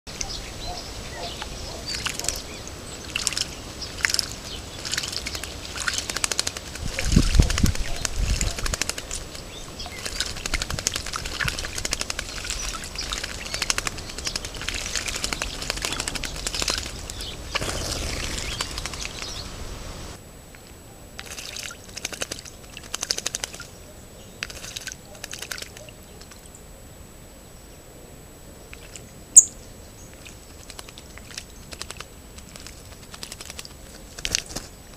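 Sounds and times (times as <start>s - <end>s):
bird splashing in water: 1.8s - 19.7s, 21.2s - 23.8s, 24.4s - 26.4s, 30.1s - 34.8s.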